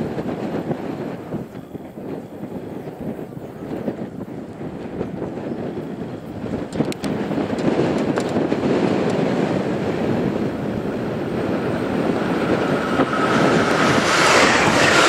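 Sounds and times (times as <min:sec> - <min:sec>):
train running on rails: 0:00.0 - 0:15.0
high whine: 0:09.6 - 0:15.0.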